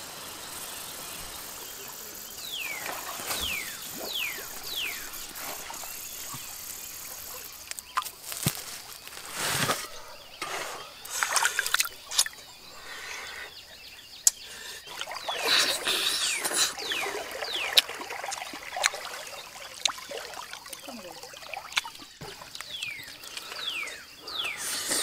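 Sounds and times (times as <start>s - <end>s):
stream trickling: 0.0s - 10.3s, 11.0s - 25.0s
knocks and scrapes: 8.3s - 10.7s.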